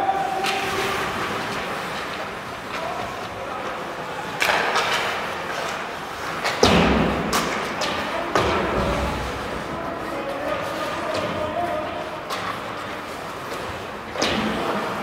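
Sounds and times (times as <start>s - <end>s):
hockey sticks and puck cracking: 0.3s - 9.2s, 10.2s - 15.0s.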